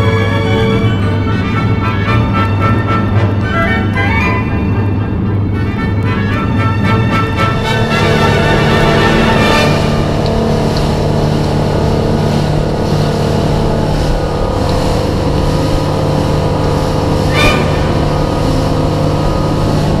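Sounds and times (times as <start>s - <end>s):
outboard motor running: 0.0s - 20.0s
water rushing past hull: 0.0s - 20.0s.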